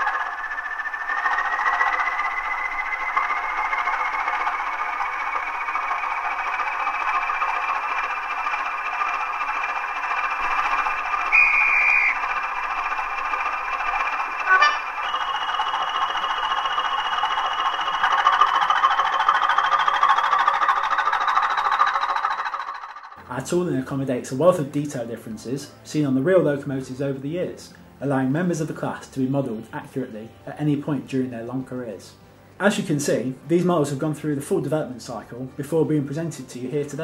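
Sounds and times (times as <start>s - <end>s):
model diesel engine with rising whine: 0.0s - 23.3s
short horn toot: 14.5s - 14.8s.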